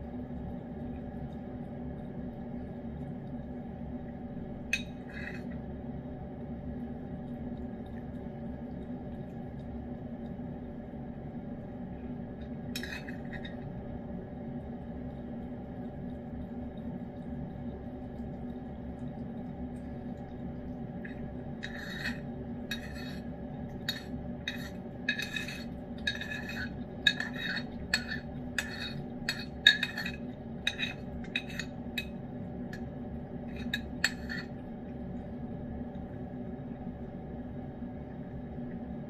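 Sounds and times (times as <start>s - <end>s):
steady background hum: 0.0s - 39.0s
metal spoon scraping ceramic bowl: 4.8s - 5.6s, 12.8s - 13.6s, 21.6s - 32.1s, 33.5s - 34.6s.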